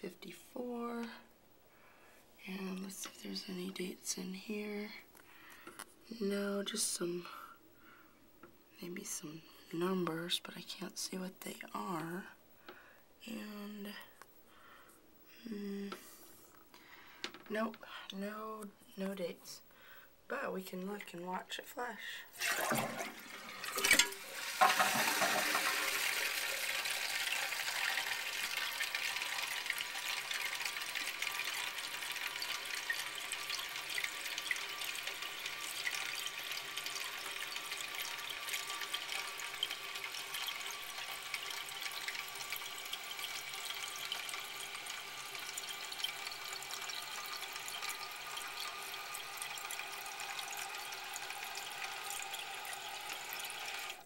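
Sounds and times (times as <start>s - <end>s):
toilet tank water rushing out: 22.3s - 54.0s
fill valve hissing: 22.4s - 54.0s.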